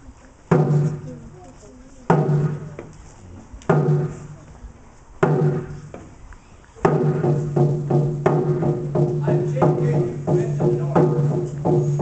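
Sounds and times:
drum beats with ringing tone: 0.5s - 1.2s, 2.1s - 2.9s, 3.7s - 4.4s, 5.2s - 5.9s, 6.8s - 12.0s.

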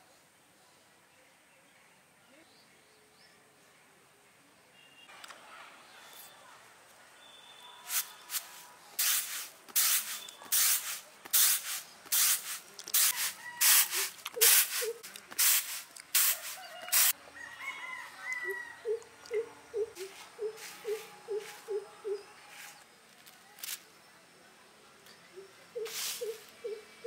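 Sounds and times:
rice swishing in a bamboo tray: 7.9s - 17.2s, 25.9s - 26.5s
bird calling: 13.1s - 15.0s, 18.4s - 22.4s, 25.3s - 27.0s.

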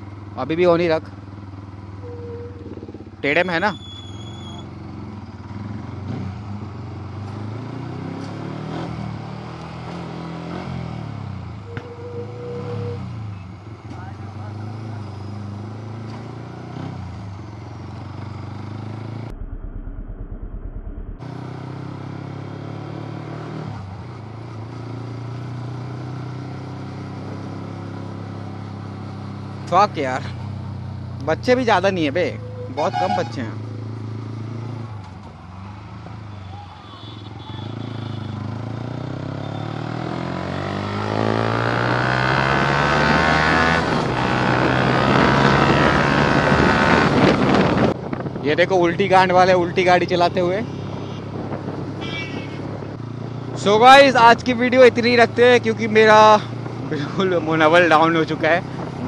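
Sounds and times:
motorcycle engine accelerating: 1.2s - 3.2s, 14.4s - 31.6s, 37.8s - 48.4s
motorcycle engine running: 17.4s - 22.8s.

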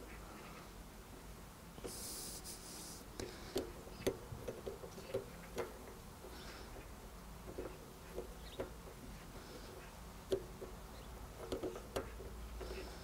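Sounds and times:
short hiss: 1.8s - 3.7s.

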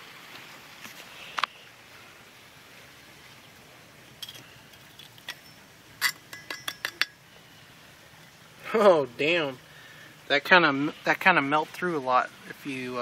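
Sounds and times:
pliers clinking on metal plates: 4.2s - 7.2s.

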